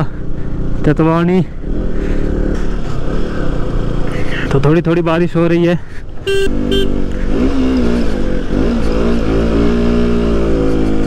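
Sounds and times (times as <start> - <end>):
motorcycle engine revving: 0.0 - 4.6, 6.0 - 11.0
motorcycle horn beeps: 6.2 - 7.0.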